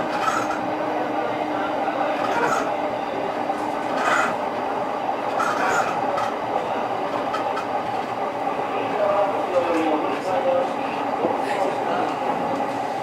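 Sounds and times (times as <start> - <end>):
train rolling noise: 0.0 - 13.0
wheels clicking over rail joints: 7.1 - 8.1.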